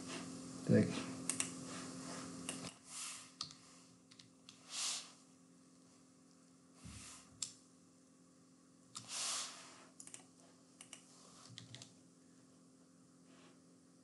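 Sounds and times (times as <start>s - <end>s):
computer keyboard and mouse clicks: 1.3s - 1.6s, 3.4s - 4.6s, 10.0s - 11.9s.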